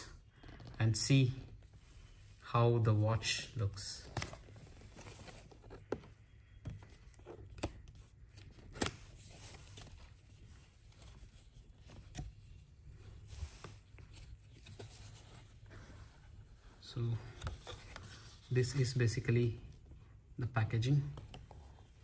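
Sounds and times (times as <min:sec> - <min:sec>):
paper box rustling: 0:04.0 - 0:07.7.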